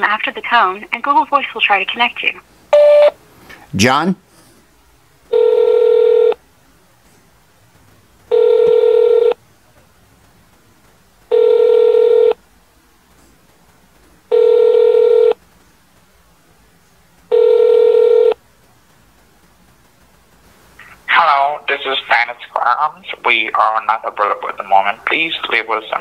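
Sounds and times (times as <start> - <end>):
telephone ringback tone: 2.8 - 3.1, 5.3 - 6.4, 8.3 - 9.4, 11.3 - 12.4, 14.3 - 15.4, 17.3 - 18.4.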